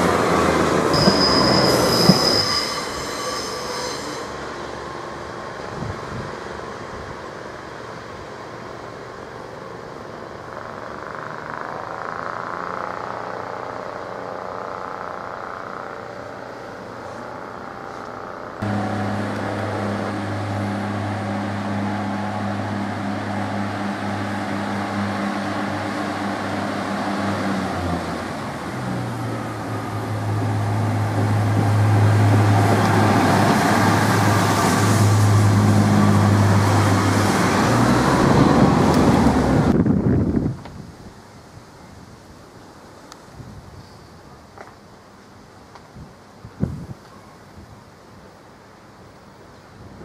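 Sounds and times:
train wheels on rails: 0:00.0 - 0:39.8
train diesel engine humming: 0:00.0 - 0:39.9.

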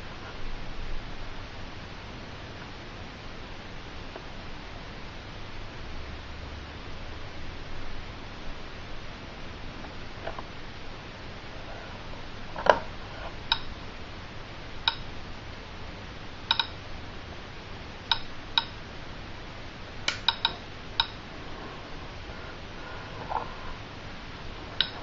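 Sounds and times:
radiation meter clicking: 0:13.5 - 0:13.8, 0:14.8 - 0:15.1, 0:16.5 - 0:16.9, 0:18.0 - 0:18.8, 0:20.0 - 0:21.2, 0:24.8 - 0:25.0.

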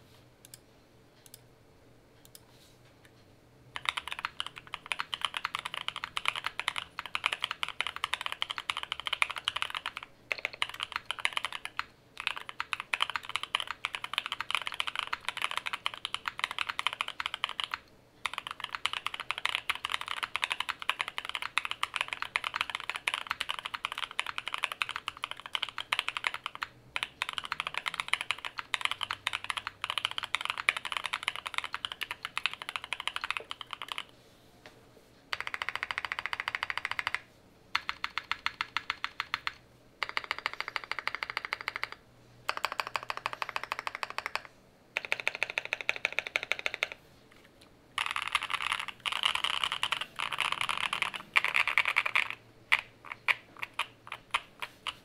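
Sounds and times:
mechanical keyboard typing: 0:03.8 - 0:34.1, 0:35.3 - 0:47.0, 0:48.0 - 0:55.0.

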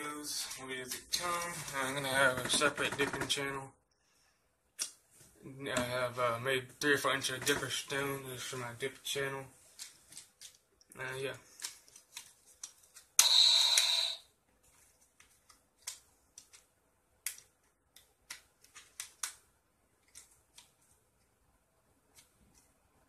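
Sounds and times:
small objects clicking and tapping: 0:14.7 - 0:19.4.

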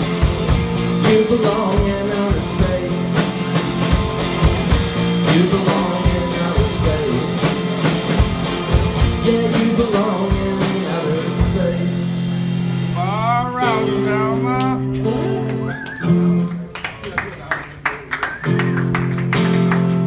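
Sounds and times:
drum kit hitting steadily: 0:00.0 - 0:12.6
electric guitar: 0:00.0 - 0:17.1, 0:18.1 - 0:20.0.

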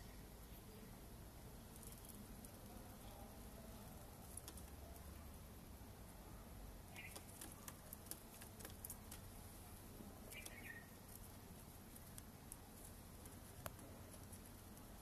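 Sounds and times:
faint ticks and scratches: 0:00.3 - 0:05.4, 0:06.9 - 0:15.0
bird giving high calls: 0:10.3 - 0:10.9.

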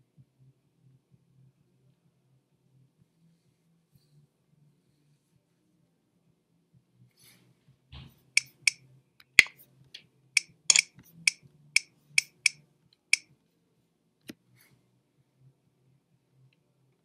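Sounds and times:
faint low hum: 0:00.0 - 0:17.0
mouse button clicking: 0:10.4 - 0:12.6.

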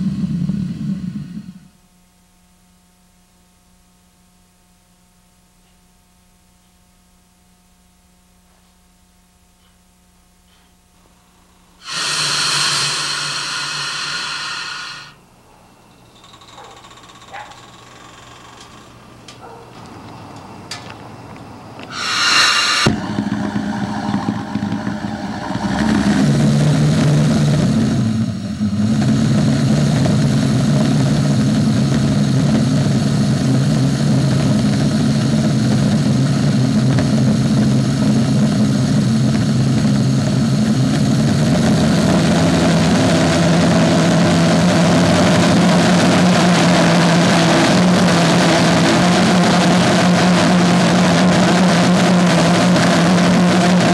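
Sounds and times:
jet engine running with drone: 0:00.0 - 0:01.7, 0:11.8 - 0:15.2, 0:21.3 - 0:53.9
gas hiss: 0:11.8 - 0:15.2, 0:21.9 - 0:30.0.

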